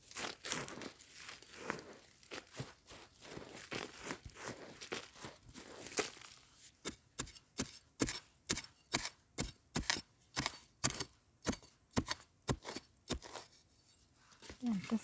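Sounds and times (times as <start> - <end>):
hand scraping soil: 0.0 - 15.0
digging blade chopping into soil: 3.7 - 13.6.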